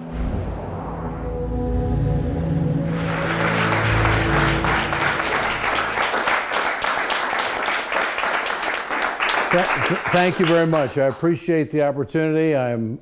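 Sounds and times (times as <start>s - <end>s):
intro music sting: 0.0s - 6.4s
audience applauding: 2.8s - 11.3s.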